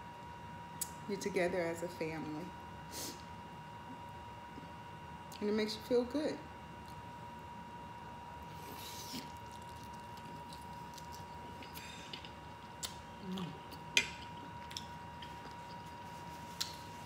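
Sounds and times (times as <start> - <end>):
wet chewing with smacks: 8.6 - 17.0
tearing bite: 8.7 - 13.8.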